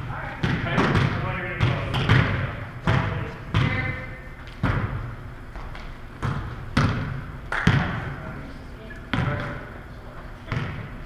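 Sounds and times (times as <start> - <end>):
volleyball smacks echoing: 0.4 - 8.2.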